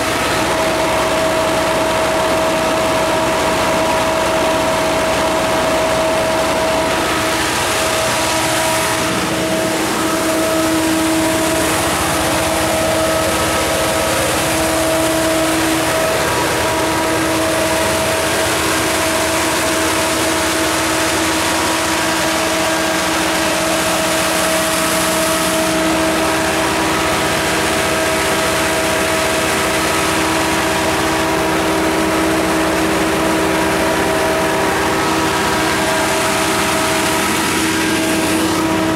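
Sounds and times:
diesel generator running: 0.0s - 38.9s
steady whining tones: 0.0s - 38.9s.

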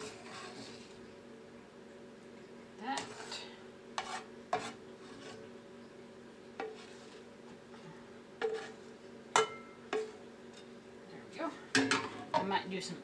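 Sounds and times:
spatula scraping frying pan: 0.0s - 1.0s, 2.9s - 5.5s, 6.6s - 7.5s, 8.4s - 9.0s
faint steady hum: 0.0s - 13.0s.

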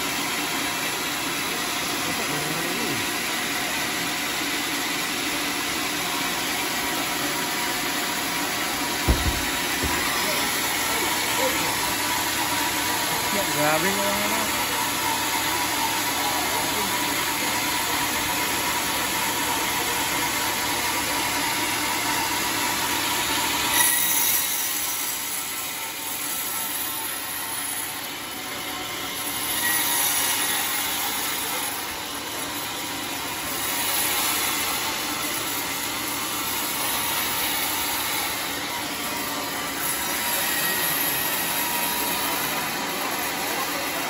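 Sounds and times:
band saw cutting log: 0.0s - 44.0s
sharp knock: 9.0s - 10.2s.

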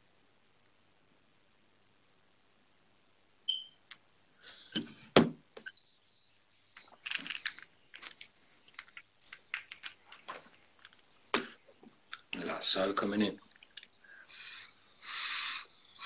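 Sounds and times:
high beep: 3.5s - 3.8s
handling clicks and crackles: 6.8s - 11.1s.

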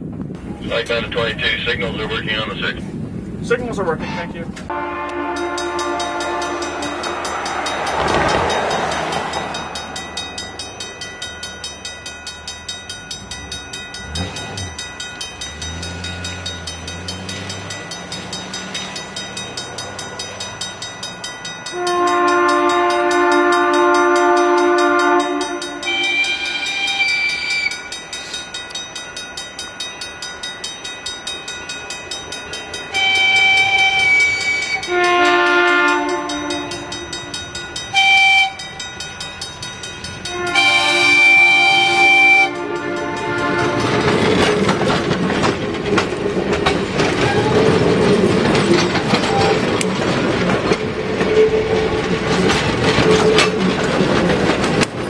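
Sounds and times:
train horn blasts: 4.0s - 8.5s, 21.7s - 27.7s, 32.9s - 37.3s, 37.9s - 38.7s, 40.2s - 44.2s
level crossing bell ringing: 5.4s - 44.0s
rushing noise: 5.6s - 21.7s.

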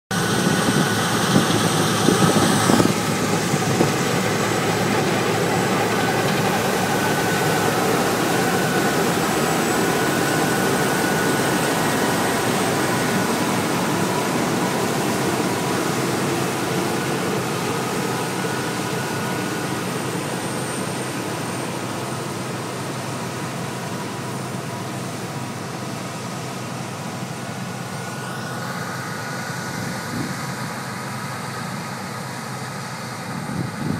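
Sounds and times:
combine harvester running: 0.1s - 33.9s.

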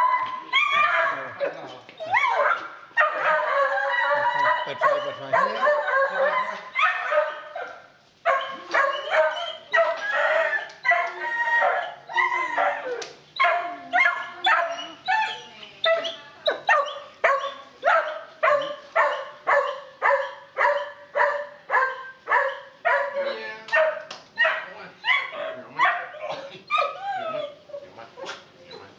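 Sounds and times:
dog yowling and whining: 0.0s - 7.5s, 8.3s - 20.9s, 24.4s - 27.9s
dog barking: 2.3s - 3.7s, 4.4s - 11.9s, 13.4s - 14.9s, 15.9s - 27.0s.

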